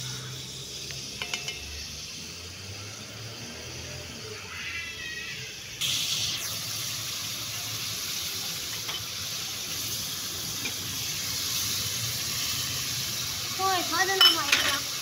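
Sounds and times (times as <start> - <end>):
chicken sizzling in pan: 0.0 - 15.0.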